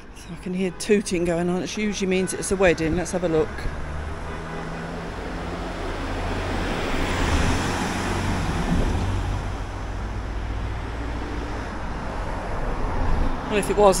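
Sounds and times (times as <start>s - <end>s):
low steady traffic rumble: 0.0s - 14.0s
car passing close by: 2.7s - 13.9s.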